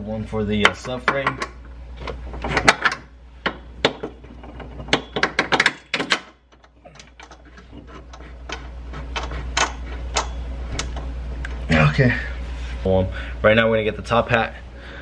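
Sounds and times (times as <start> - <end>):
metallic clicks of nuts and bolts: 0.7 - 11.1.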